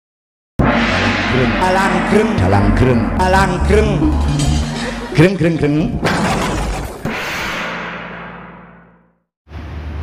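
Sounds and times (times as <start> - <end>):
noisy crash sound effect: 0.6 - 5.2, 6.0 - 9.2
whoosh sound effect: 0.6 - 5.2.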